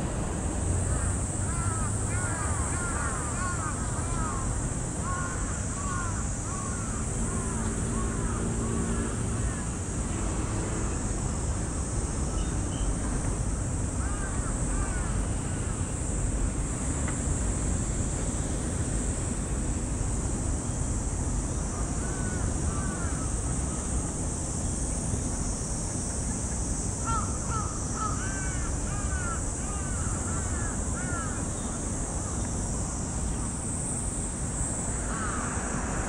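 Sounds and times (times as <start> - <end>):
crow cawing: 0.9 - 7.6, 14.0 - 15.1, 22.1 - 23.3, 27.1 - 31.4, 35.1 - 35.6.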